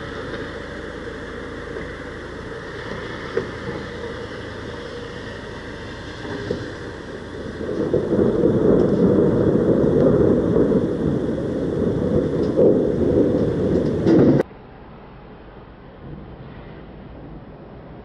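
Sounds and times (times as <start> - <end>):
thunder rumbling: 0.0 - 14.5, 15.9 - 18.0.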